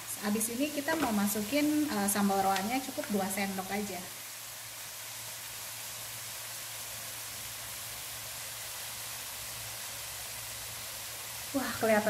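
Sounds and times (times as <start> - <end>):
food sizzling in a wok: 0.0 - 12.0.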